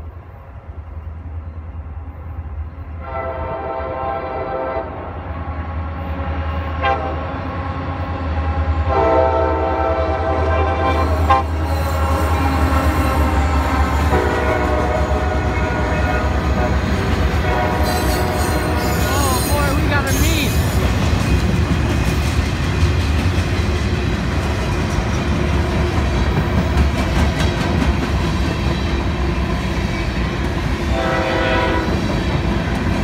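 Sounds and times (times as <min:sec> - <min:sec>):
train air horn blasts: 0:03.0 - 0:05.0, 0:06.3 - 0:07.3, 0:08.8 - 0:20.6, 0:30.9 - 0:32.0
train wheels on rails: 0:09.6 - 0:33.0.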